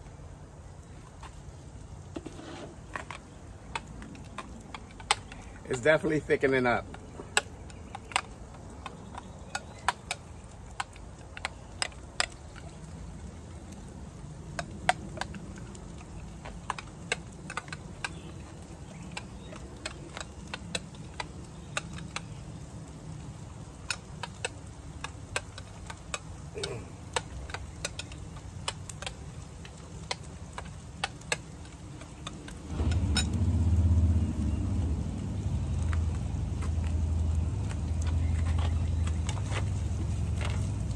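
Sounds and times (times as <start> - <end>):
vehicle engine running: 32.6 - 40.9.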